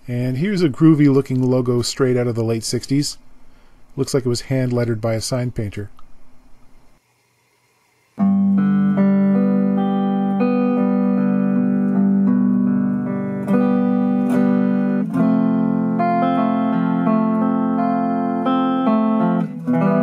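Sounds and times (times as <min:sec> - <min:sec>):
electric guitar chords: 0:08.2 - 0:20.0.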